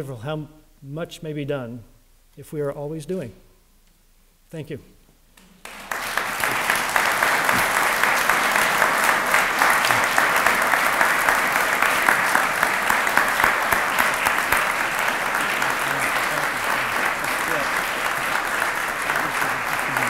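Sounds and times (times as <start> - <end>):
audience applause: 5.4 - 20.0.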